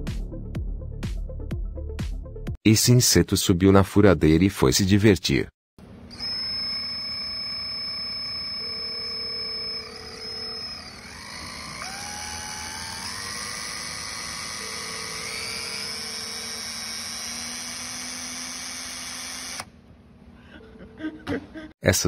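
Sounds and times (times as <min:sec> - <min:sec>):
electric drill motor whine: 0:06.1 - 0:19.7.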